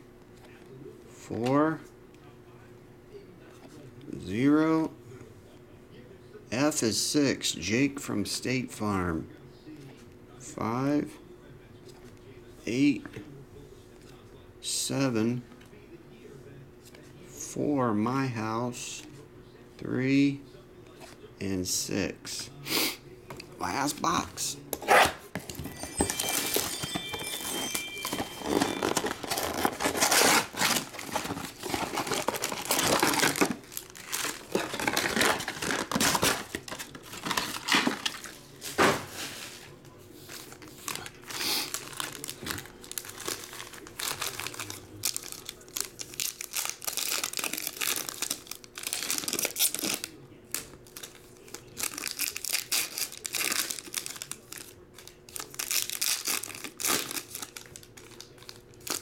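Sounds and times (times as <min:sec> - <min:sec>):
plastic wrap tearing: 0:25.8 - 0:39.2, 0:40.6 - 0:59.0
foil packs ripped open: 0:27.7 - 0:38.3, 0:40.9 - 0:59.0.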